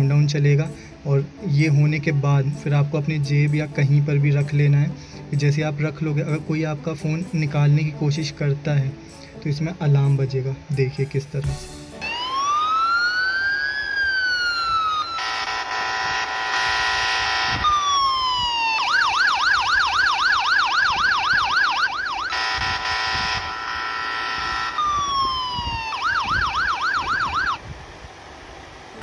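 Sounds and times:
phone alarm siren: 12.0 - 27.6.

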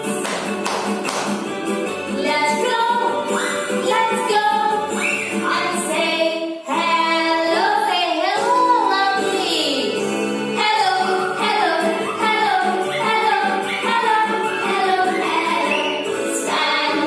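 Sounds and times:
children's song with sung vocals: 0.0 - 17.0.

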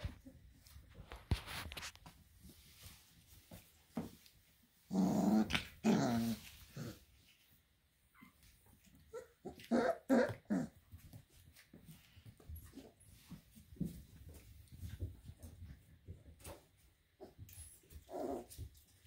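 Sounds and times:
puppies growling: 4.8 - 7.3, 8.8 - 11.2, 17.2 - 18.9.

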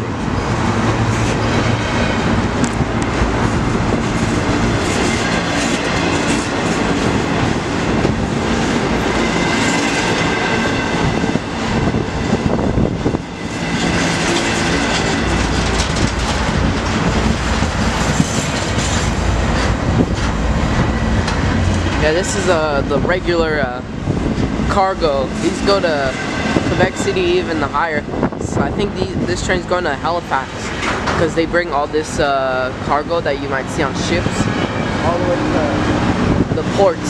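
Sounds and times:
train wheels clacking over rail joints: 13.7 - 20.4, 30.6 - 31.4.

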